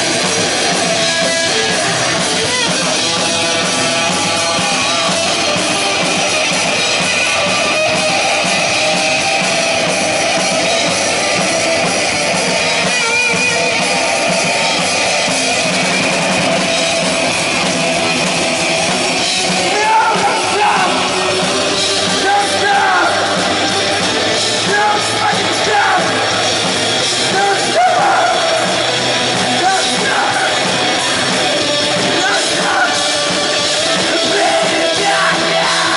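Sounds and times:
distorted electric guitars: 0.0 - 35.9
drum kit: 0.0 - 35.9
person singing: 27.2 - 35.9.

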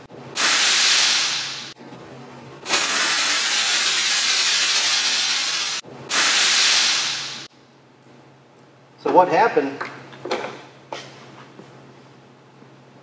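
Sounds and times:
loud rushing gas hiss: 0.4 - 1.8, 2.7 - 7.5.

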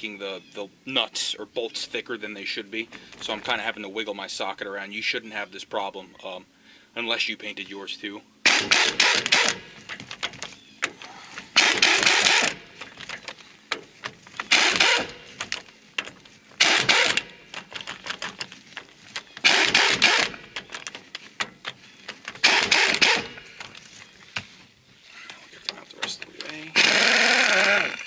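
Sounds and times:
cordless power tool spinning: 8.5 - 10.5, 11.5 - 21.1, 22.2 - 23.8, 26.6 - 28.0.

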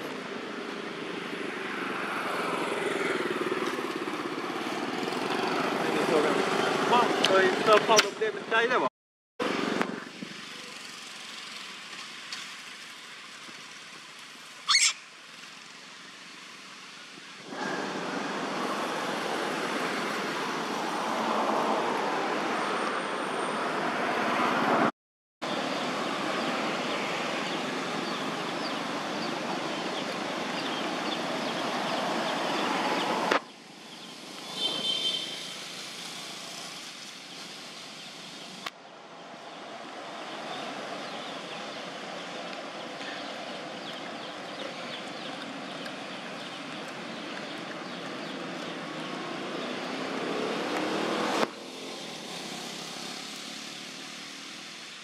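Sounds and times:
brief high-pitched call: 14.7 - 15.0
outdoor background hiss: 25.5 - 55.0.

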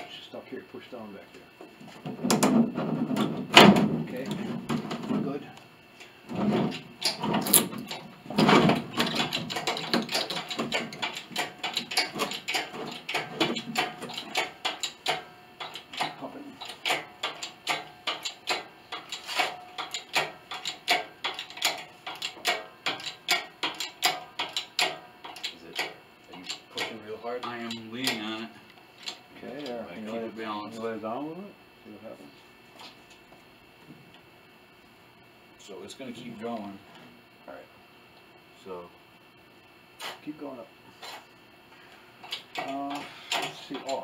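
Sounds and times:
hoist clicking: 8.9 - 28.3, 42.2 - 44.0.

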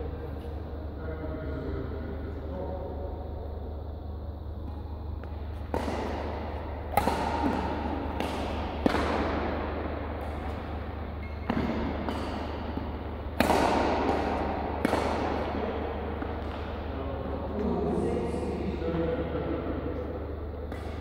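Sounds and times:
steady low hum: 0.0 - 21.0
rackets striking shuttlecock: 4.6 - 16.9, 20.6 - 21.0.

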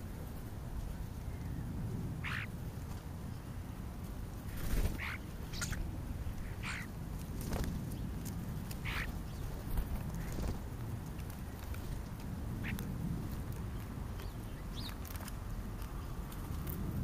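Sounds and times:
low outdoor rumble: 0.0 - 17.0
starlings calling harshly: 2.2 - 2.5, 4.5 - 6.9, 8.8 - 9.4.

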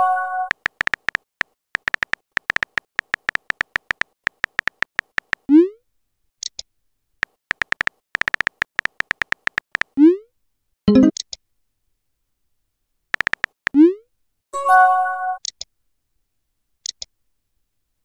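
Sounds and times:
phone keyboard tapping clicks: 0.4 - 5.5, 7.2 - 10.0, 13.2 - 13.8.

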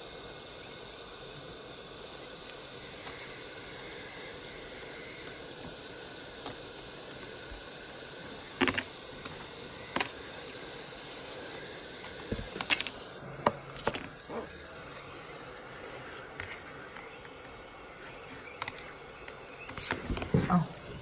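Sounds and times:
heat gun blowing: 0.0 - 16.3.

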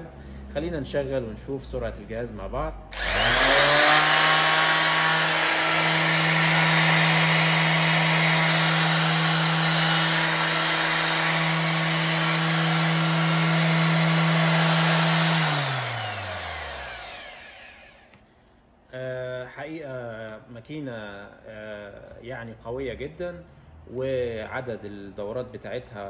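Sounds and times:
orbital sander motor hum and whine: 3.0 - 18.2.

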